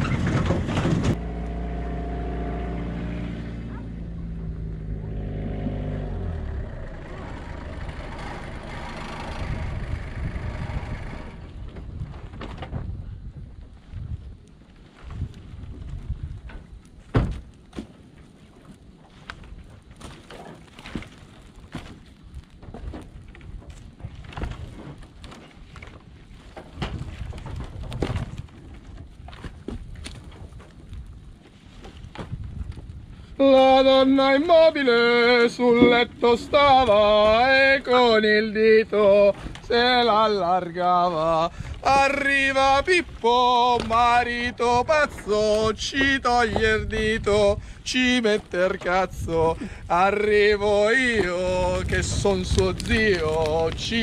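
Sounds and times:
dry branches rattling and thudding: 0:00.0 - 0:01.2, 0:13.9 - 0:33.8, 0:35.0 - 0:54.0
truck engine rumbling: 0:00.0 - 0:12.2, 0:33.3 - 0:54.0
wind buffeting microphone: 0:03.8 - 0:17.7, 0:18.5 - 0:54.0.

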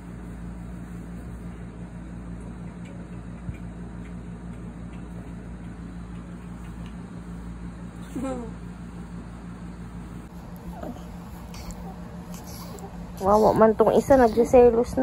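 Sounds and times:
air conditioner humming: 0:00.0 - 0:15.0.

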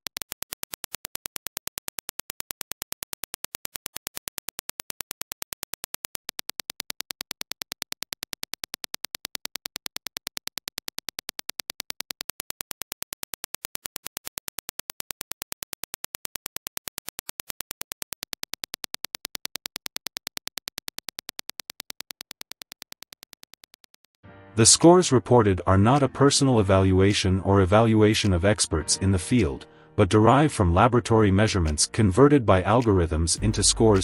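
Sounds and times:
rapid sharp clicks: 0:00.0 - 0:24.2.

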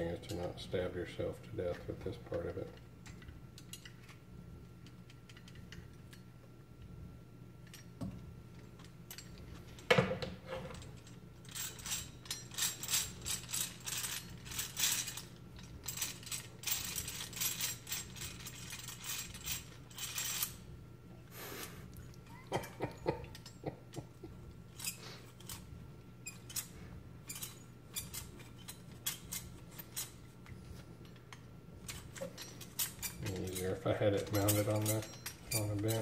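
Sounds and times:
metal parts clicking and rattling: 0:01.7 - 0:04.2, 0:04.8 - 0:06.3, 0:07.6 - 0:09.9, 0:10.6 - 0:20.7, 0:22.1 - 0:36.0
rapid metallic clattering of gears: 0:31.8 - 0:36.0.

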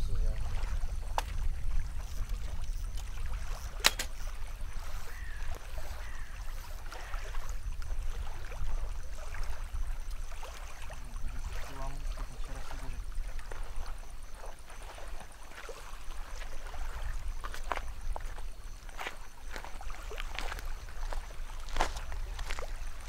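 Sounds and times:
water splashing at lake shore: 0:00.0 - 0:23.0
sharp clicks: 0:03.7 - 0:04.2.

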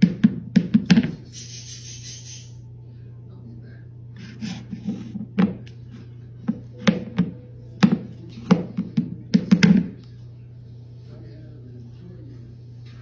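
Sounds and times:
ceramic bowl knocking on wooden floor: 0:05.2 - 0:05.6, 0:06.4 - 0:10.0.

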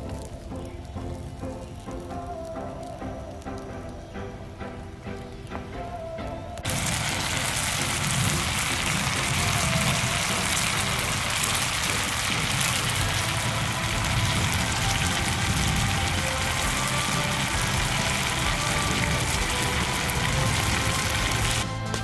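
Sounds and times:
wood campfire crackling: 0:00.0 - 0:22.0
pot boiling hard: 0:06.6 - 0:22.0.

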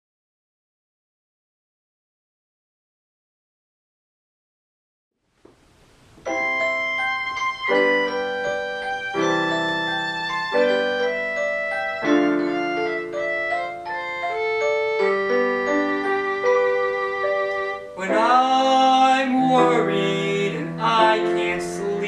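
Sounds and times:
piano playing slow chords: 0:06.2 - 0:22.0.

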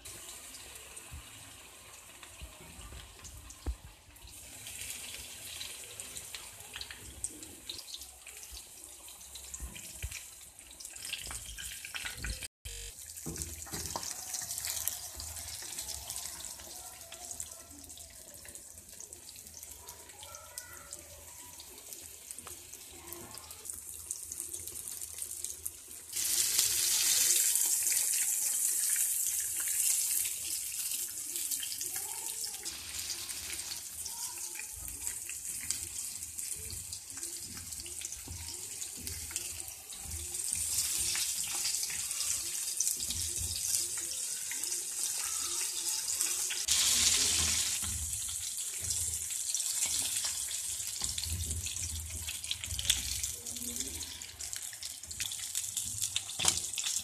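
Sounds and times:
fish sizzling in hot oil: 0:00.0 - 0:57.0.

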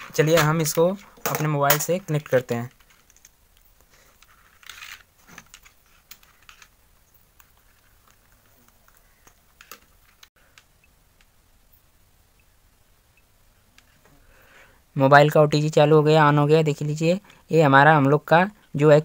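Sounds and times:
cable clicks and rustles: 0:00.0 - 0:11.4.

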